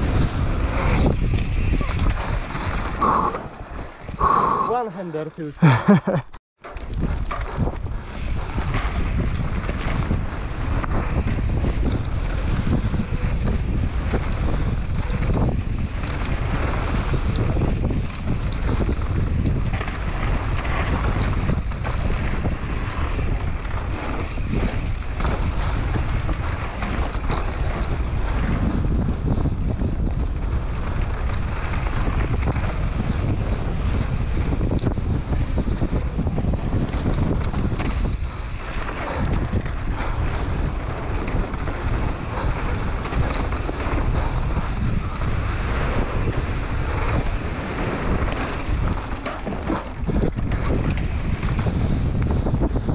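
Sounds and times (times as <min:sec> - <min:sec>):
bike rattles and knocks: 0:00.0 - 0:03.2, 0:06.0 - 0:52.9
wind buffeting microphone: 0:00.0 - 0:04.9, 0:06.8 - 0:52.9.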